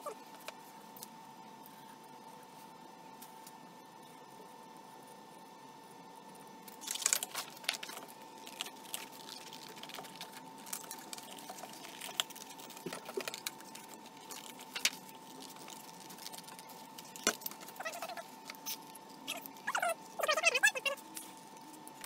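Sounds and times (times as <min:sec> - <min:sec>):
steady high hum: 0:00.0 - 0:22.0
scissors snipping paper: 0:06.7 - 0:20.5
paper rustling and crinkling: 0:06.7 - 0:22.0.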